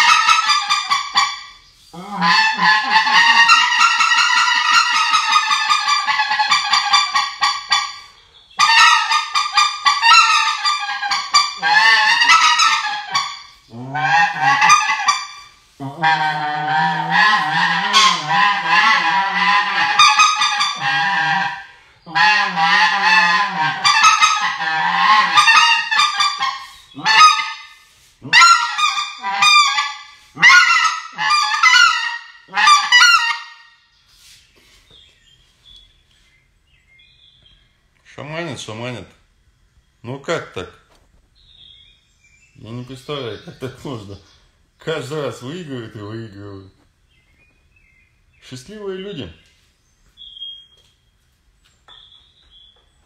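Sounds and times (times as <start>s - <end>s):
goose call honks and clucks: 0.0s - 33.8s.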